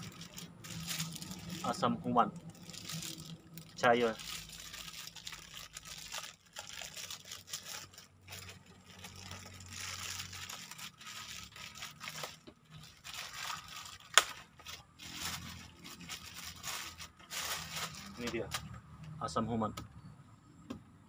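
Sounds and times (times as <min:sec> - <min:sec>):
plastic bag crinkling and tearing: 0:00.0 - 0:18.7.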